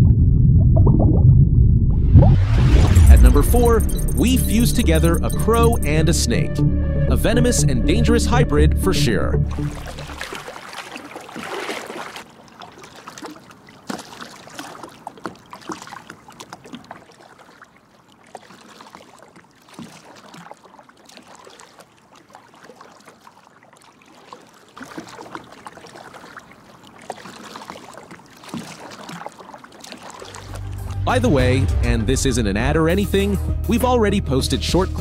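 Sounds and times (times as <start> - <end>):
small water splashes and drips: 9.5 - 31.0
stream water trickling: 9.5 - 31.0.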